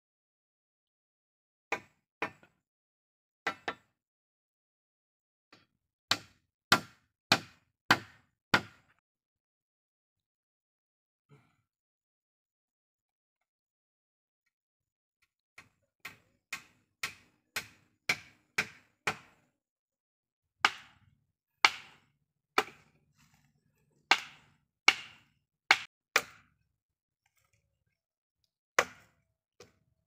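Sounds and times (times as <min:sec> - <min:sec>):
axe striking wood: 0:01.7 - 0:02.5, 0:03.5 - 0:03.9, 0:05.5 - 0:08.9, 0:15.6 - 0:19.4, 0:20.6 - 0:21.0, 0:21.6 - 0:22.9, 0:24.1 - 0:26.6, 0:28.8 - 0:29.8.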